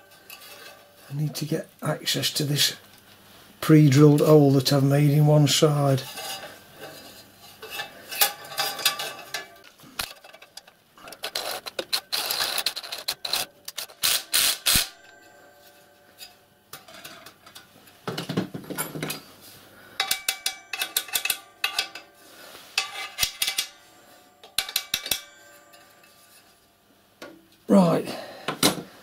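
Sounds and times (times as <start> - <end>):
metal hose clamp clicking and clinking: 20.0 - 22.1.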